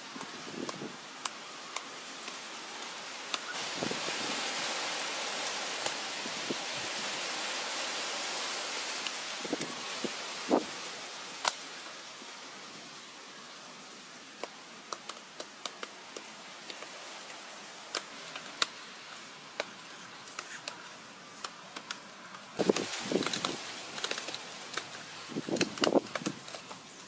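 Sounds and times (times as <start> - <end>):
faint hiss: 0.0 - 27.0
steady high whine: 18.0 - 27.0.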